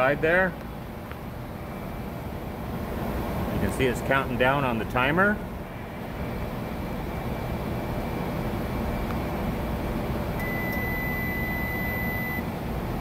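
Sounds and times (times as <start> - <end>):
microwave oven humming: 0.0 - 13.0
long electronic beep: 10.4 - 12.5.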